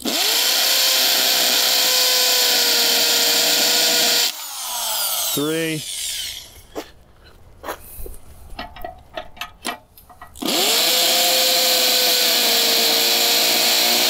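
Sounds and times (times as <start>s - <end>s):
hammer drill boring into concrete: 0.0s - 6.6s, 10.4s - 14.0s.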